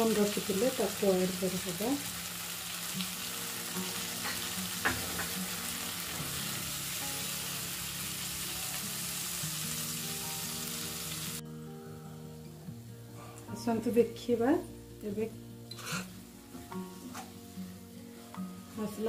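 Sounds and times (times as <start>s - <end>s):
onions sizzling in hot oil: 0.0s - 11.4s.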